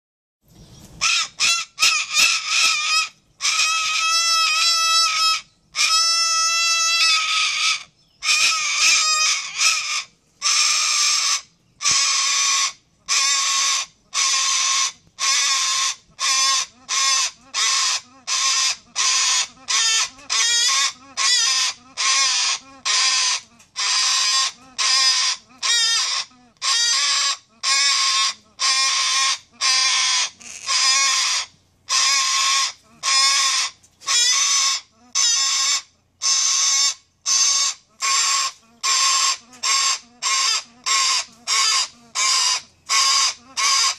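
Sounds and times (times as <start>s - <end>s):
cockatoo calling loudly: 0.9s - 43.9s.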